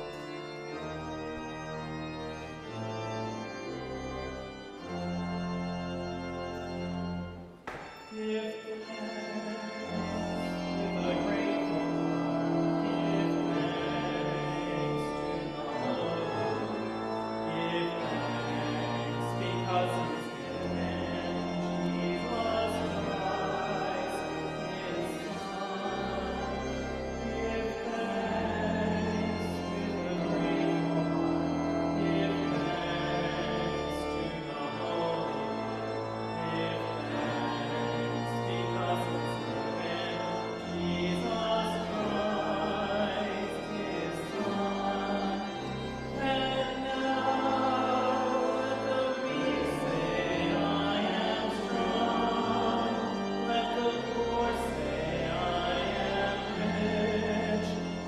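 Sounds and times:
congregation singing a hymn: 0.0 - 58.0
organ chords: 0.0 - 58.0.

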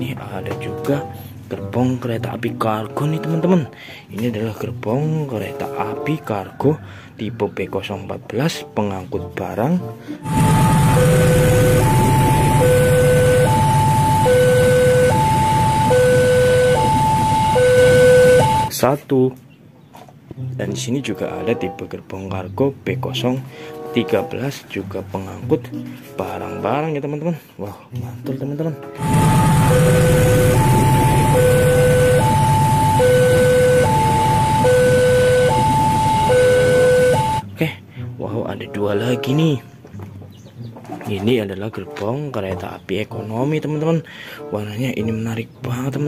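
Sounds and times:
level crossing two-tone alarm: 10.2 - 18.7, 29.0 - 37.4.

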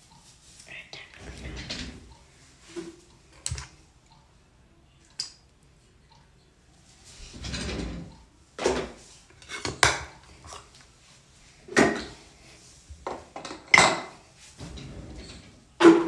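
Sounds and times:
objects clattering on countertop: 8.6 - 10.7, 11.7 - 12.2, 13.0 - 16.0.

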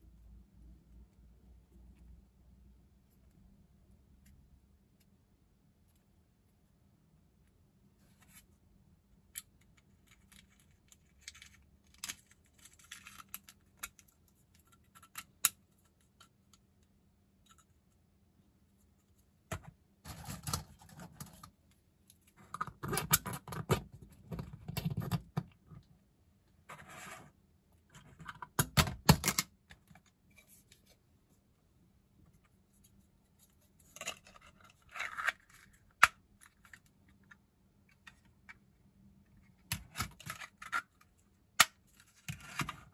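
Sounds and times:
plastic parts clicking and rattling: 9.3 - 16.6.

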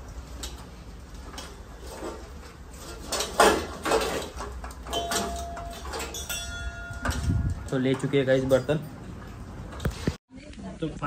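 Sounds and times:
steel pots clattering: 0.1 - 9.0
thin ringing tone: 4.8 - 9.1.

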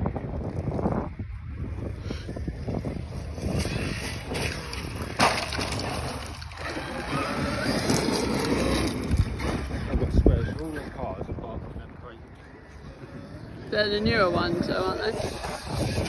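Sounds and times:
wind buffeting microphone: 0.0 - 16.0
tyres crunching on gravel: 3.2 - 10.0
truck tumbling thud: 3.7 - 10.0
electric motor whine: 12.4 - 16.0.

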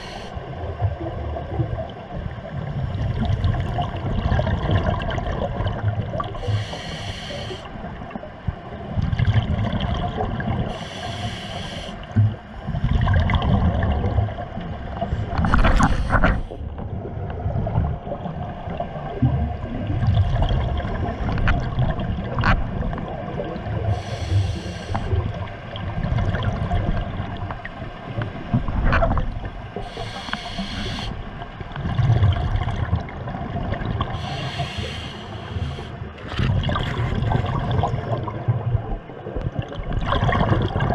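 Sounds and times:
hissing regulator inhales: 0.0 - 0.4, 6.4 - 7.7, 10.7 - 12.1, 15.4 - 16.6, 23.9 - 25.2, 29.8 - 31.3, 34.2 - 36.0
bubbling rumble of exhaled bubbles: 0.0 - 6.5, 7.8 - 10.8, 12.1 - 30.2, 31.4 - 34.3, 36.2 - 40.9.

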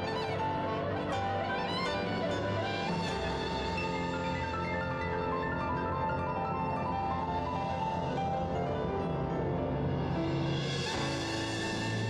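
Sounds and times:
bowed strings music: 0.0 - 5.9.

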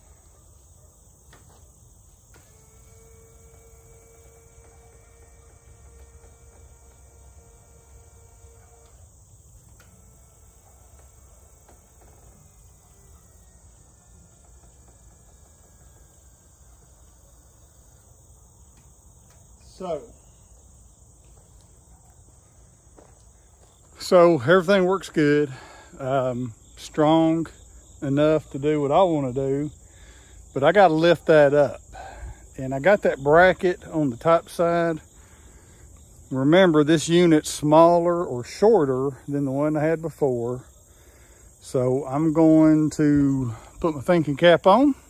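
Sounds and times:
crickets chirping: 0.0 - 45.0
actuator motor whining: 1.2 - 24.7.

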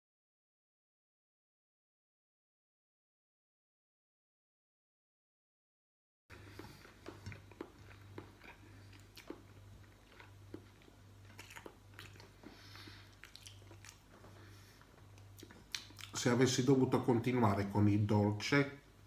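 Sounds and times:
faint chewing: 6.3 - 16.2
low steady hum: 6.3 - 19.0.

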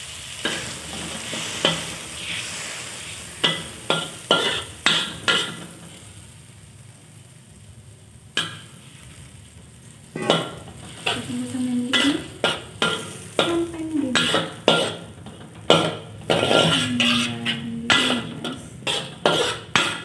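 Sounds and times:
spatula scraping a wok: 0.0 - 6.3, 8.4 - 20.0
faint sizzle: 0.0 - 20.0.

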